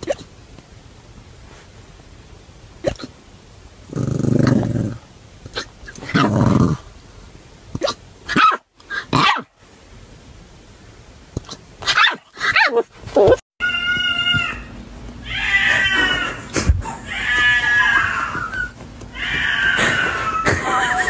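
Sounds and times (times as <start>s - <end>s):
puppy hiccups: 7.8s - 9.5s
puppy barking: 8.3s - 9.5s, 11.9s - 12.8s
cat meowing: 13.6s - 20.6s.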